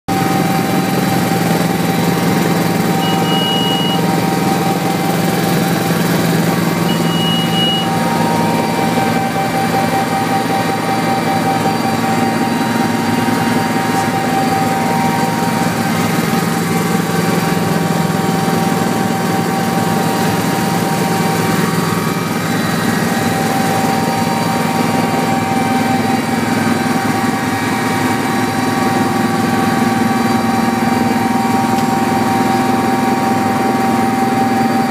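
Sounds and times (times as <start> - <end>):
helicopter engine drone: 0.1 - 34.9
steady whine: 0.1 - 34.9
short high beeps: 2.9 - 4.9, 6.8 - 17.2.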